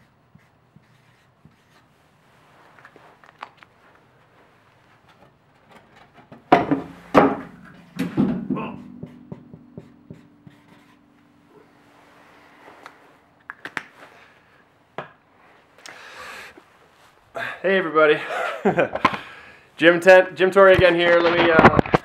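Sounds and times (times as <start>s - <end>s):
marker scratching on paper: 0.0s - 1.9s
sharp knocks: 6.4s - 11.5s
low lingering ring: 6.9s - 13.4s.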